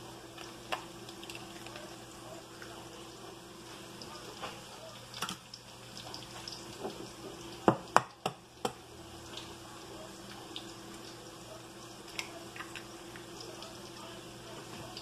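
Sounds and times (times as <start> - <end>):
peppers sizzling in a pan: 3.0 - 15.0.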